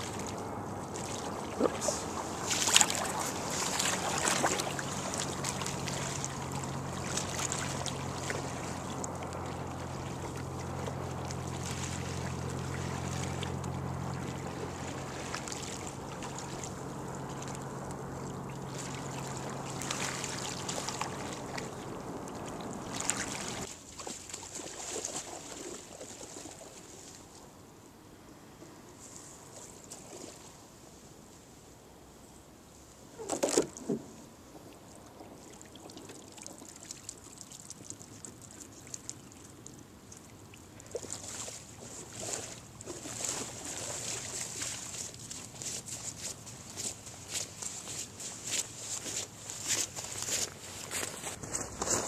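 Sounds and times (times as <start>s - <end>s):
steady low hum: 0.0s - 23.8s, 38.7s - 52.0s
paddle strokes splashing: 0.0s - 27.4s, 29.0s - 30.6s, 33.2s - 52.0s
water lapping against a paddleboard: 0.0s - 27.4s, 33.2s - 52.0s.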